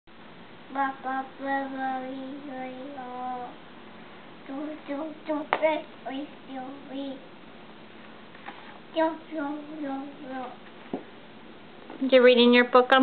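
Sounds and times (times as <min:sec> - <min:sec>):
person singing slow tune: 0:00.7 - 0:03.6.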